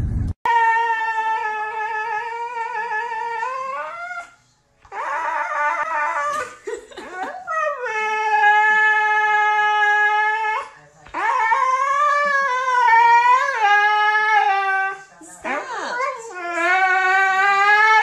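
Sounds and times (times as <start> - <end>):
dog howling: 0.5 - 6.5, 7.5 - 18.0.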